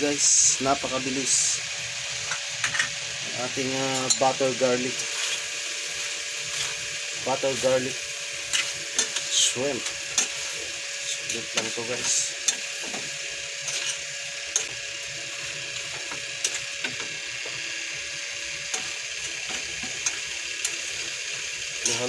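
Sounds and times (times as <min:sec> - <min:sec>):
shrimp sizzling in a pan: 0:00.1 - 0:22.0
spatula clicking and scraping pan: 0:05.0 - 0:07.6, 0:08.3 - 0:14.8, 0:18.6 - 0:21.1, 0:21.7 - 0:22.0.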